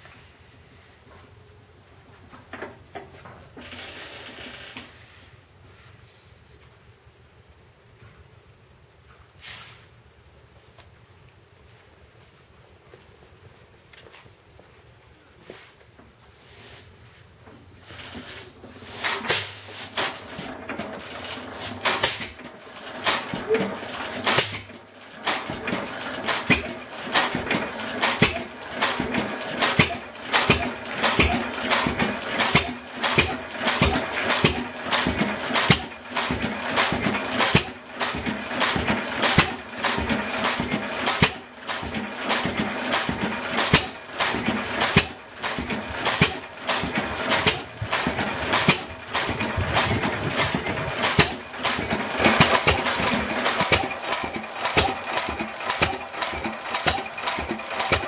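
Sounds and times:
stationary engine beating: 0:20.2 - 0:58.0.

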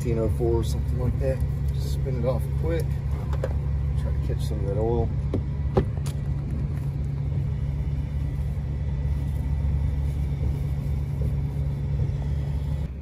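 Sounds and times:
low engine drone: 0:00.0 - 0:13.0.

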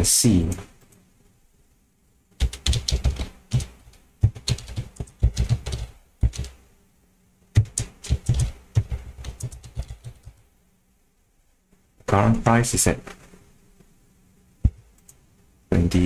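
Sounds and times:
computer keyboard typing: 0:02.4 - 0:06.6, 0:07.6 - 0:10.4.

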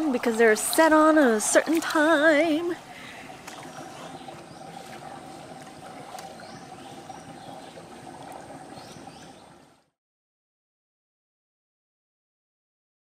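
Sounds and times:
pool water lapping and trickling: 0:00.0 - 0:10.0.

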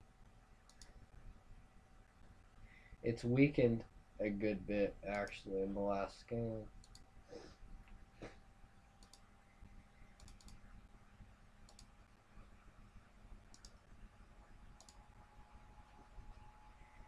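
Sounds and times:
room hum: 0:00.0 - 0:17.0
faint computer mouse clicks: 0:00.7 - 0:01.0, 0:06.8 - 0:07.1, 0:09.0 - 0:09.3, 0:10.2 - 0:10.7, 0:11.7 - 0:11.9, 0:13.5 - 0:13.8, 0:14.8 - 0:15.0.

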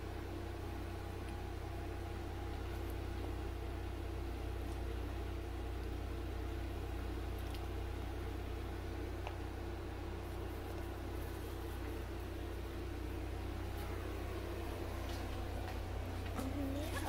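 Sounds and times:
low mechanical hum: 0:00.0 - 0:17.0.

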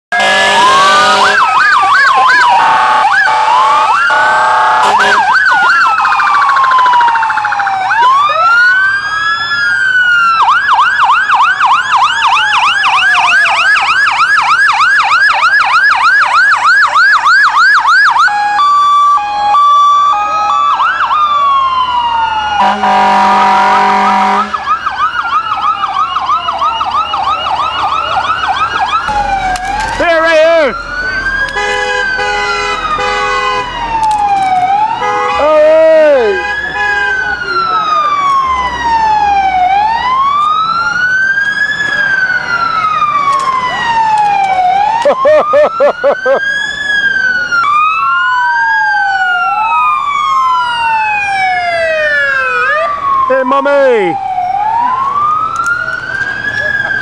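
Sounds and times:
vehicle horn blasts: 0:00.1 - 0:01.4, 0:02.6 - 0:05.3, 0:22.6 - 0:24.5, 0:31.6 - 0:33.6, 0:35.0 - 0:35.5, 0:36.3 - 0:37.3
electronic sirens wailing and yelping: 0:00.1 - 0:57.0.

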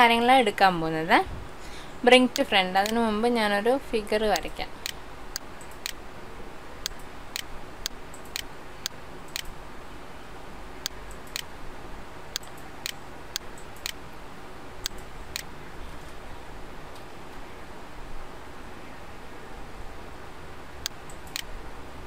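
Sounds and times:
faint steady hiss: 0:00.0 - 0:22.0
computer mouse clicks: 0:06.8 - 0:09.6, 0:10.9 - 0:11.5, 0:12.4 - 0:14.0, 0:20.8 - 0:21.5.

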